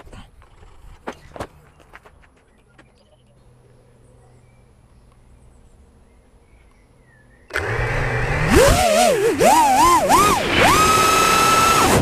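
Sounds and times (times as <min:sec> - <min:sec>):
quadcopter motors whining: 0:07.5 - 0:12.0.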